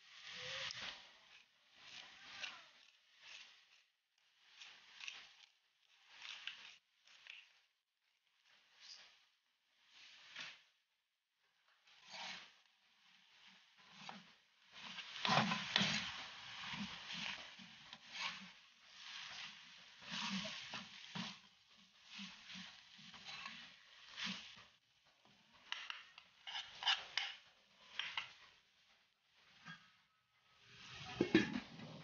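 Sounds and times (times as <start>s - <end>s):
wooden spatula scraping a pan: 11.9s - 28.6s, 30.6s - 32.0s.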